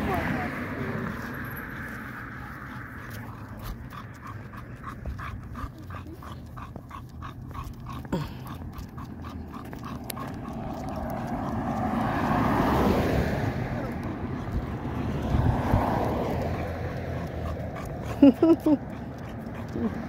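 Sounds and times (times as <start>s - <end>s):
dog panting: 0.1s - 13.0s, 13.7s - 20.0s.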